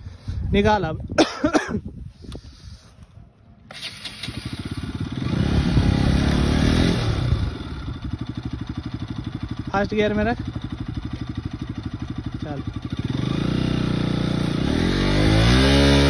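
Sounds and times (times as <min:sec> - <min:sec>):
motorcycle engine revving: 0:03.6 - 0:16.0.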